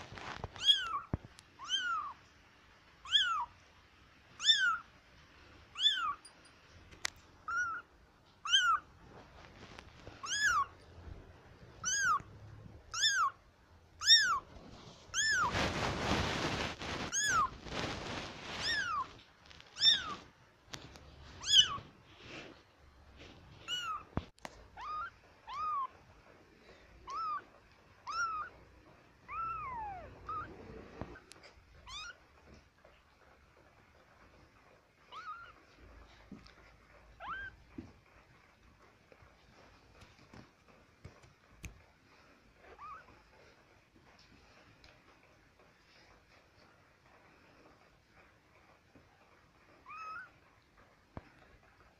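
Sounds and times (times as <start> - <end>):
rustling noise: 0.0 - 3.6, 4.2 - 51.9
kittens mewing: 11.8 - 13.4, 27.0 - 28.6, 29.2 - 32.2.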